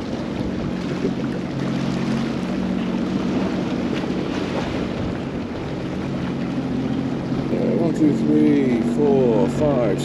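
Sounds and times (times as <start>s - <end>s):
personal watercraft engine idling: 0.0s - 10.0s
wind buffeting microphone: 0.0s - 10.0s.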